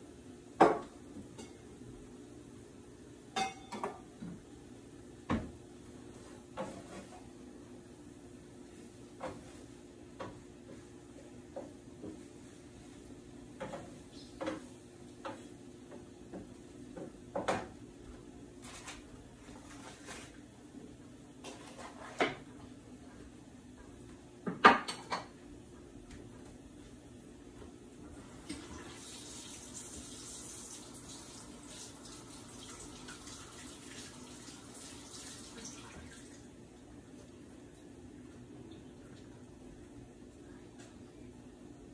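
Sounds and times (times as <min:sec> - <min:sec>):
faucet running into sink: 0:28.4 - 0:36.5
low steady hum: 0:31.5 - 0:41.9.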